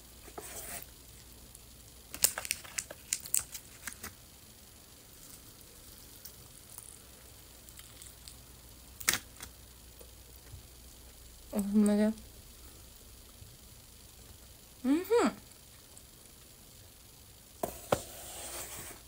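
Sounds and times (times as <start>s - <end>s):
crunching fried chicken: 2.0s - 4.2s, 5.1s - 9.6s
quiet chewing: 5.2s - 8.4s.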